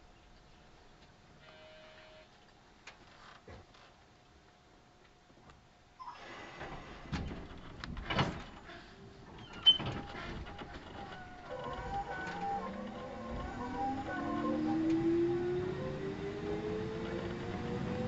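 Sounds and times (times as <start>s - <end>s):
train clunks and knocks: 6.6s - 15.5s
traction motor whine rising: 10.8s - 18.0s.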